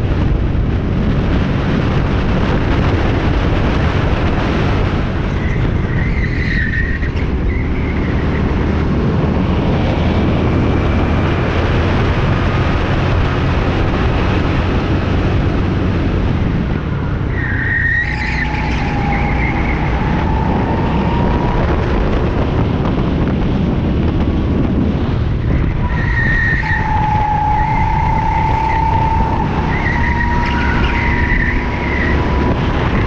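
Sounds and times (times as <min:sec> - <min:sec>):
wind rushing: 0:00.0 - 0:33.0
tyre squeal: 0:05.3 - 0:08.4, 0:17.3 - 0:21.3, 0:25.5 - 0:32.3.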